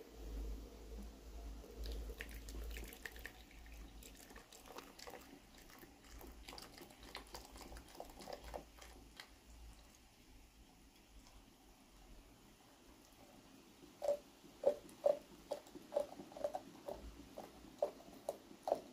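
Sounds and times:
water pouring into mug: 1.7s - 10.0s, 14.0s - 18.9s
small drips and ticks: 1.7s - 12.2s, 12.8s - 18.9s.

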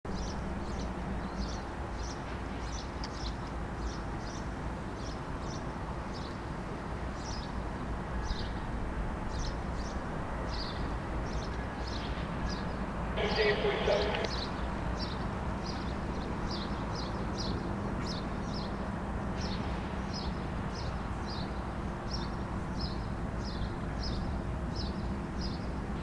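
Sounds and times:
distant diesel locomotives idling: 13.2s - 14.6s.

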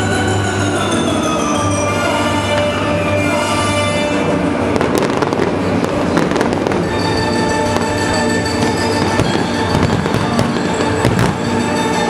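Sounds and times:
music: 0.0s - 12.0s
fireworks popping and banging: 4.7s - 12.0s.

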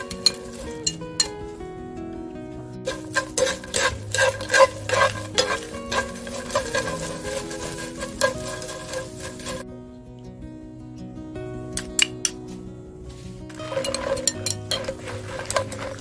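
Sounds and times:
wooden spatula scraping a pan: 0.0s - 0.9s, 2.9s - 9.6s, 13.5s - 16.0s
light sizzle of frying: 0.0s - 1.6s, 2.8s - 9.6s, 13.1s - 16.0s
background music: 0.0s - 16.0s.

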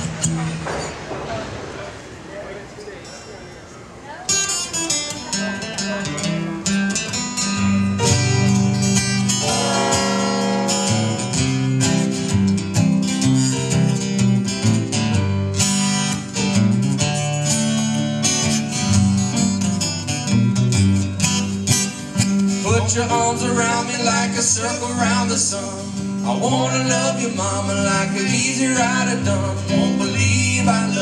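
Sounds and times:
acoustic guitars strumming: 4.3s - 31.0s
keyboard: 6.7s - 31.0s
low bass notes: 8.4s - 13.4s.

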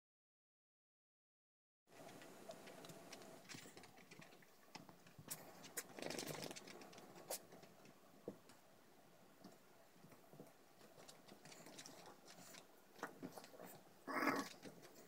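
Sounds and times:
paws and claws tapping: 10.1s - 15.0s.

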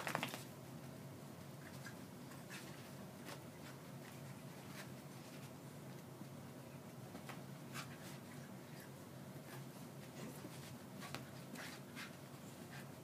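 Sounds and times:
low steady hum: 0.0s - 13.0s
animals scuffling on carpet: 0.1s - 13.0s.

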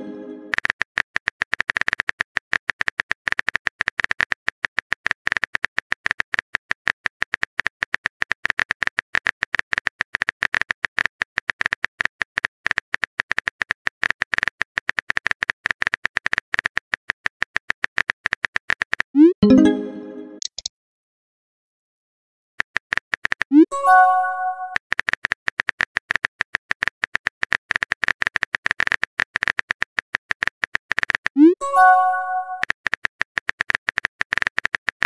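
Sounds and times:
phone keyboard typing clicks: 20.4s - 20.7s.

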